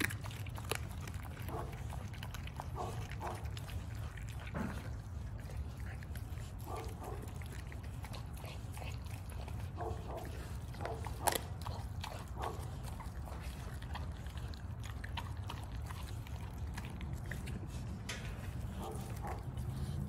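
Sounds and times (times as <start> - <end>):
bone cracking: 0.0 - 4.9, 10.0 - 18.2
dog chewing raw chicken: 0.0 - 20.0.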